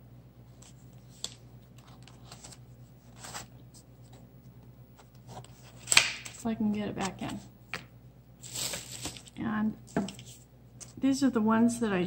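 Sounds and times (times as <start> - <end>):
paper rustling: 0.6 - 4.2, 8.4 - 11.0.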